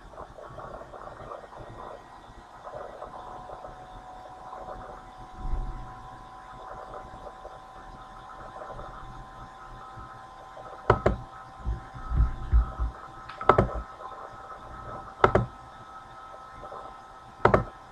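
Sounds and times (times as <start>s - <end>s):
steady electrical hum: 0.0s - 17.9s
computer mouse clicking: 10.9s - 11.2s, 12.6s - 13.8s, 15.2s - 15.5s, 17.4s - 17.7s
dull low thumps: 11.0s - 13.9s.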